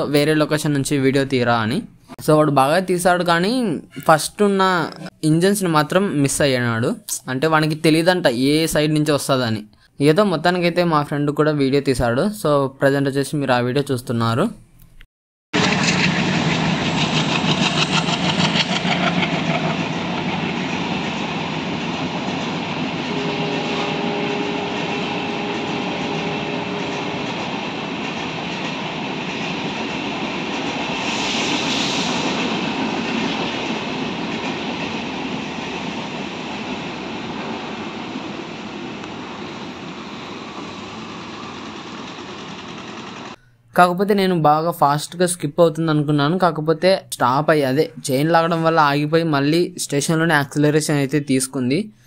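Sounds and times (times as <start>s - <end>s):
train wheels clattering: 15.6s - 43.4s
steady tone: 19.7s - 43.7s.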